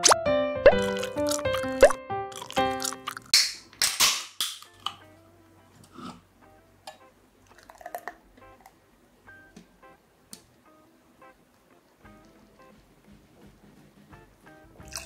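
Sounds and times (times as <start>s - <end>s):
beer pouring into glass: 7.5s - 8.2s.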